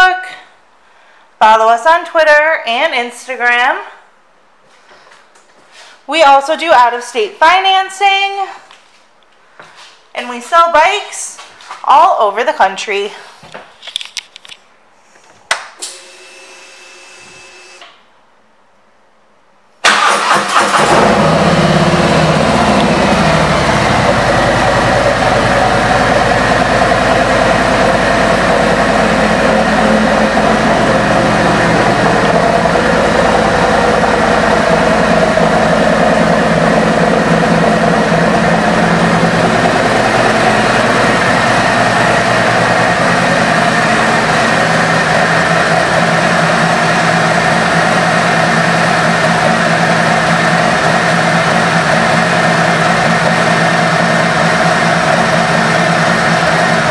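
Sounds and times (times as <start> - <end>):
motorcycle engine idling: 21.8 - 56.9.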